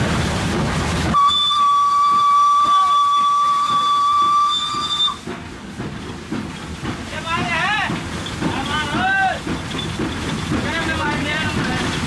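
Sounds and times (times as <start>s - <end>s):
loud steam hiss: 0.0s - 12.0s
high-pitched steam whistle: 1.1s - 5.3s.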